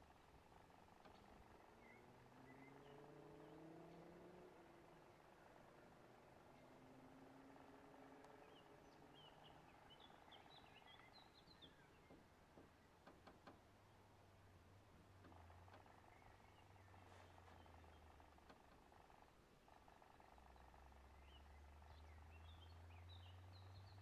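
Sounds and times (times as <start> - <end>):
distant bird chirps: 0.0 - 14.5, 15.1 - 24.0
faint low hum: 0.0 - 24.0
faint clicks: 15.1 - 20.7.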